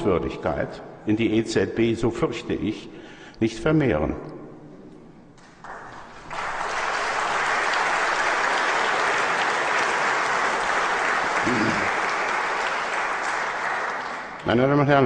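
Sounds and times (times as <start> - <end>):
audience applauding: 5.4 - 14.9.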